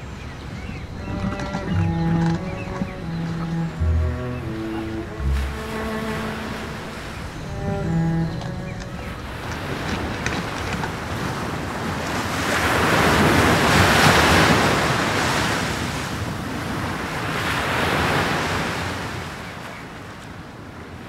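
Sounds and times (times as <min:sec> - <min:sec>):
sea waves surging: 0:00.0 - 0:16.0.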